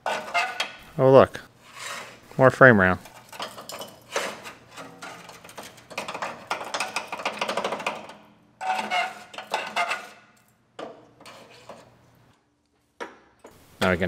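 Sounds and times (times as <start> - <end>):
metal pieces clattering and knocking: 3.0 - 11.0.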